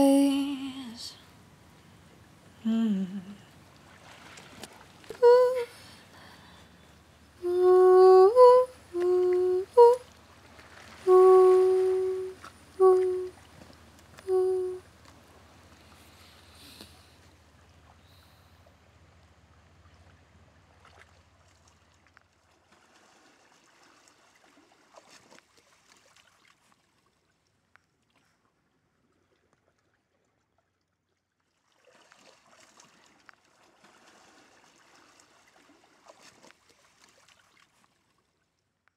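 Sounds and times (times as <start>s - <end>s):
faint trickling stream: 0.0s - 38.9s
small clicks and splashes: 3.7s - 5.2s, 19.2s - 38.9s.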